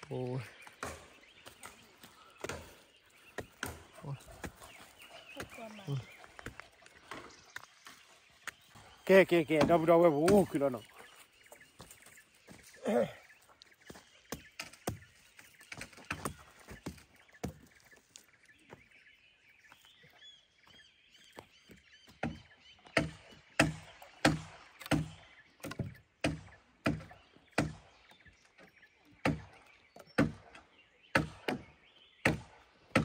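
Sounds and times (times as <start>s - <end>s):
twigs crackling: 0.0s - 21.8s
footsteps on dry ground: 0.0s - 22.2s
bird chirping: 0.0s - 33.0s
strikes against a log: 0.6s - 1.8s, 2.4s - 4.7s, 8.7s - 10.8s, 13.9s - 17.8s, 21.7s - 33.0s.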